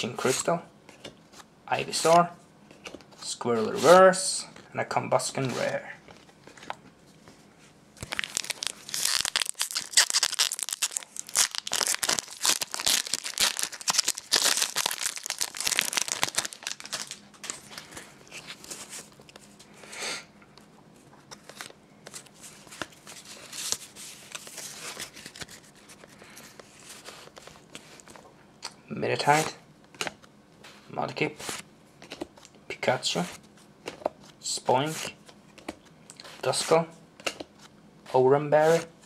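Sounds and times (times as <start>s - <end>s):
foil wrapper tearing and crinkling: 8.0s - 17.7s.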